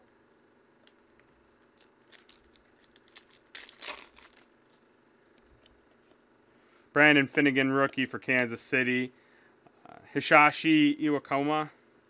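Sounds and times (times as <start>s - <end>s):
foil pack crinkling and tearing: 1.6s - 4.8s.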